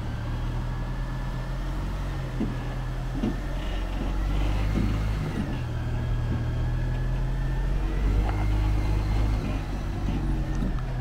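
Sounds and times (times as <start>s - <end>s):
truck engine low rumble: 0.0s - 11.0s.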